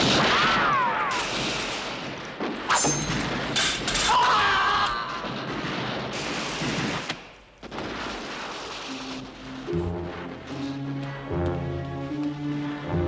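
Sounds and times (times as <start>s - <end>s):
battle noise: 3.4s - 6.8s.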